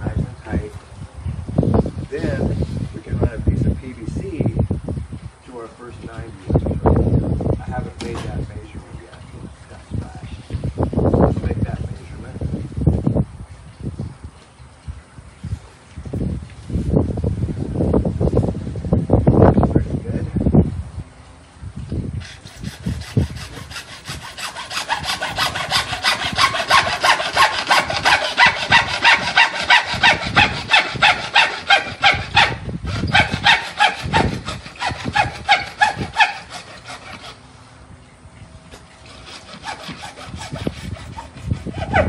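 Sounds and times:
hand saw cutting plastic pipe: 22.2s - 37.4s, 38.7s - 42.0s.

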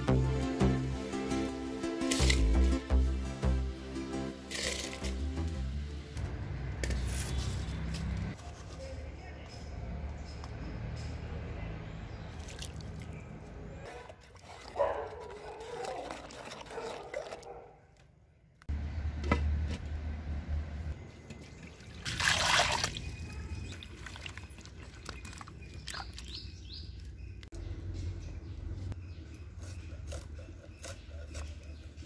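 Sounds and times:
water trickling in a pot: 21.5s - 26.3s.

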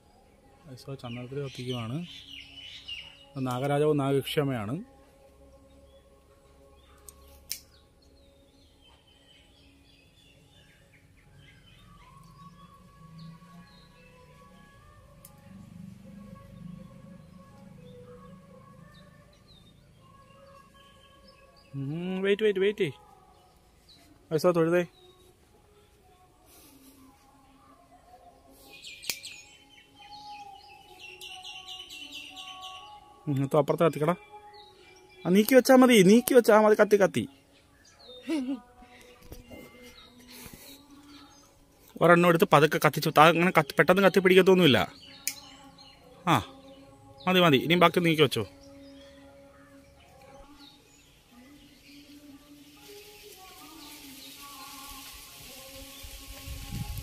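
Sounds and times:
small birds chirping: 0.0s - 57.0s
lighter clicks: 7.0s - 7.7s, 29.0s - 29.3s.

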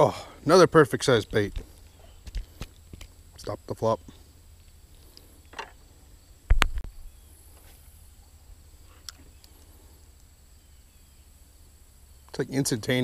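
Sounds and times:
sharp thump with rumble: 6.5s - 7.0s.

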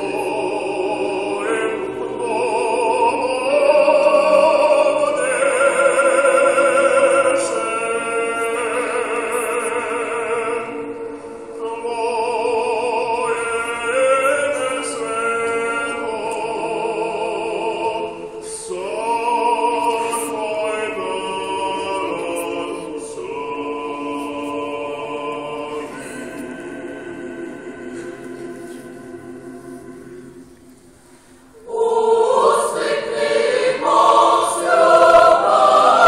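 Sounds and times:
choir singing a cappella: 0.0s - 36.0s.

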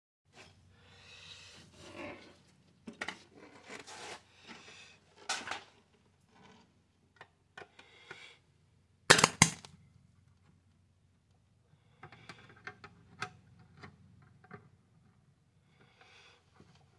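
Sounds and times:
metal rods scraping and rustling: 1.5s - 6.7s.

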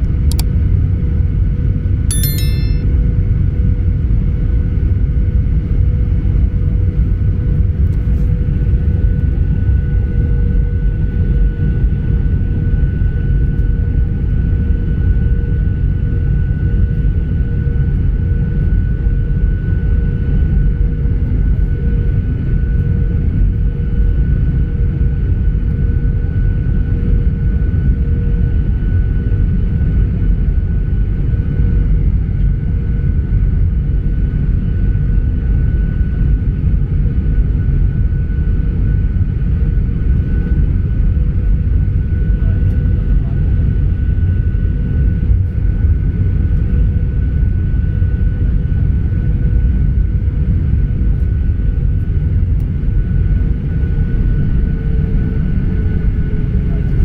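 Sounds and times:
jet engine whine: 5.0s - 57.0s
airplane cabin rumble: 48.6s - 57.0s.

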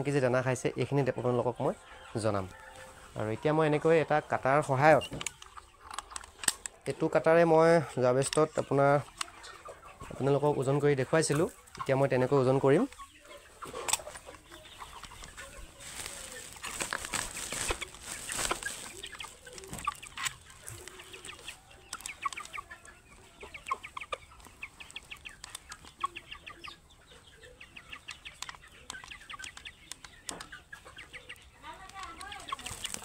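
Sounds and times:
chickens clucking and chirping: 0.0s - 33.0s
rustling and scuffing: 12.8s - 21.6s, 32.4s - 33.0s.

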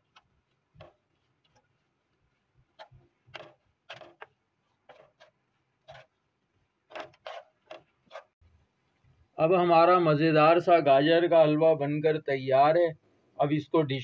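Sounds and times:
spatula scraping a pan: 0.0s - 8.4s.

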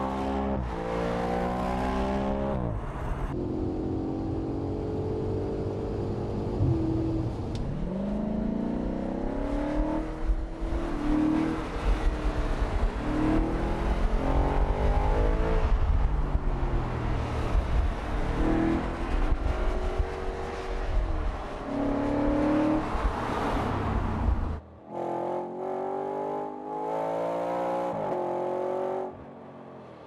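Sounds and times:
exhaust and road noise: 0.0s - 30.0s
car engine revving: 21.6s - 29.2s.

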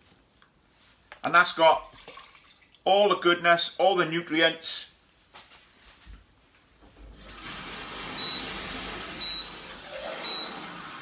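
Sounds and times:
tap water filling a jug: 7.1s - 11.0s.

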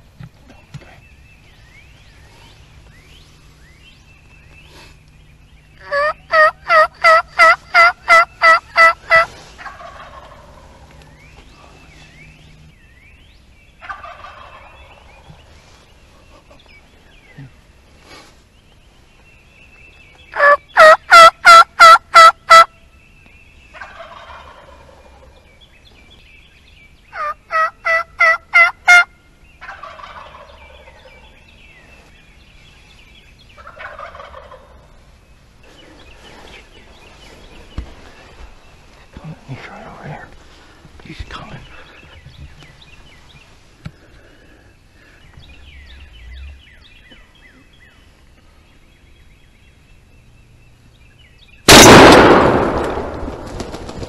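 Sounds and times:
turkey call yelping: 5.8s - 10.6s, 20.3s - 22.7s, 27.2s - 30.5s
distant turkey gobbling: 5.8s - 11.5s, 13.8s - 15.5s, 20.3s - 22.7s, 23.7s - 25.5s, 27.1s - 31.4s, 33.6s - 35.1s.

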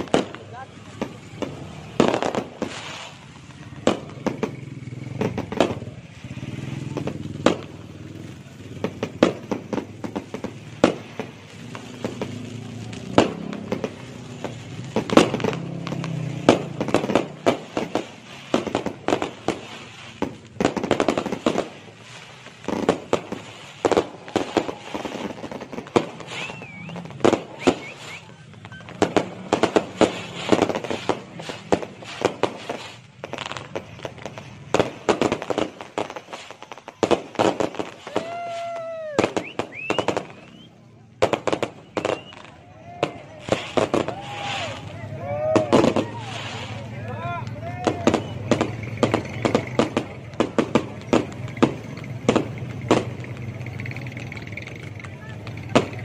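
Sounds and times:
fireworks bangs: 0.0s - 56.0s.

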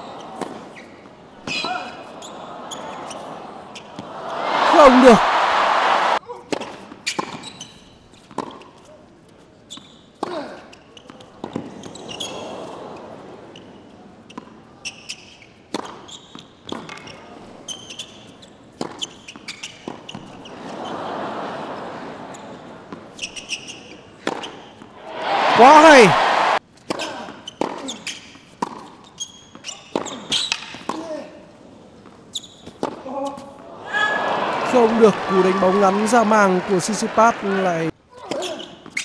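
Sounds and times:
shoe squeaks: 0.1s - 4.0s, 7.0s - 8.4s, 9.7s - 11.2s, 14.3s - 20.5s, 23.2s - 24.7s, 27.4s - 30.9s, 32.3s - 33.4s, 38.2s - 39.0s
crowd murmur: 2.0s - 6.2s, 33.6s - 37.9s
tennis ball bounces: 28.6s - 29.0s.

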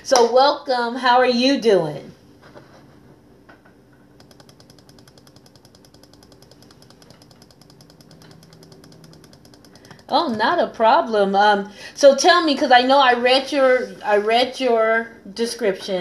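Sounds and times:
faint low hum: 0.0s - 16.0s
rapid clicking: 4.2s - 10.2s.

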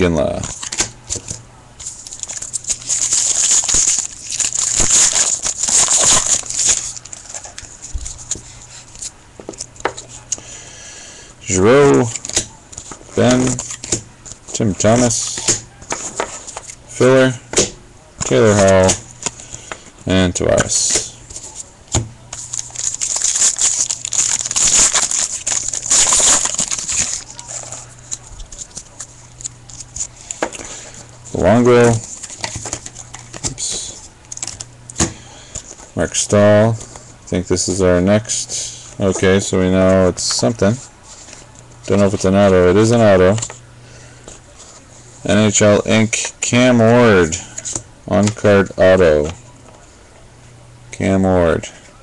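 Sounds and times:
cards rustling and clicking: 0.2s - 10.5s, 11.5s - 16.8s, 17.5s - 35.8s
foil wrapper crinkling and tearing: 1.8s - 9.8s, 22.3s - 31.0s, 31.8s - 34.7s.

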